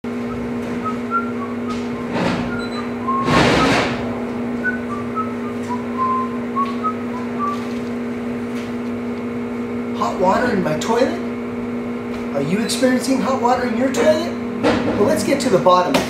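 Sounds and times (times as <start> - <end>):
steady low hum: 0.0 - 15.9
short high whistled notes: 4.6 - 7.7.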